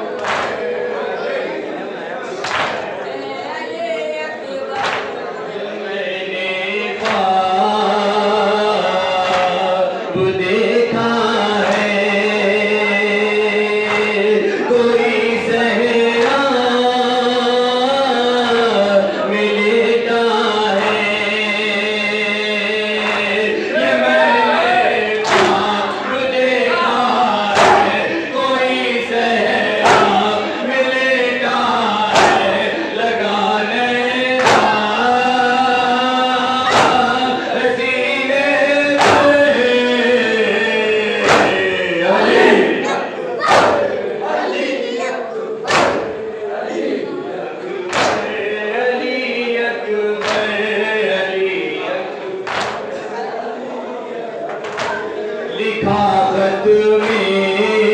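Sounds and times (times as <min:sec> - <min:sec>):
men chanting through microphone: 0:00.0 - 0:57.9
chest slaps: 0:00.2 - 0:00.6, 0:02.4 - 0:02.8, 0:25.2 - 0:25.7, 0:27.6 - 0:28.0, 0:29.8 - 0:30.3, 0:32.1 - 0:32.5, 0:34.4 - 0:34.8, 0:36.7 - 0:37.2, 0:39.0 - 0:39.4, 0:41.2 - 0:41.7, 0:43.4 - 0:43.9, 0:45.7 - 0:46.2, 0:47.9 - 0:48.3, 0:50.2 - 0:50.5, 0:52.5 - 0:52.9, 0:54.6 - 0:55.0.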